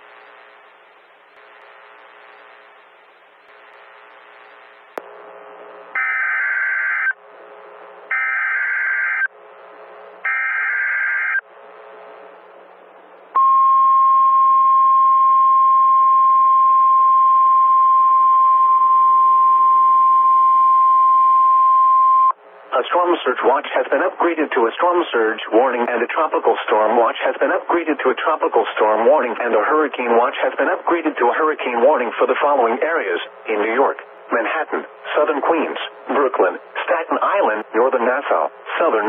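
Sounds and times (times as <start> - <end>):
steady alarm tone: 5.9 - 7.2, 8.1 - 9.3, 10.2 - 11.4.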